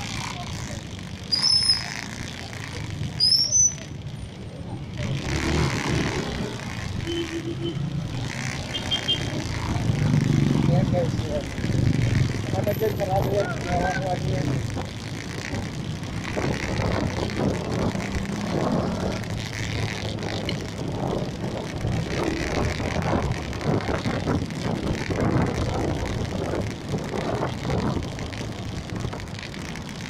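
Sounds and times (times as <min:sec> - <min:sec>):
vehicle engine humming: 0:00.0 - 0:30.0
wind buffeting microphone: 0:15.5 - 0:19.3, 0:20.1 - 0:29.3.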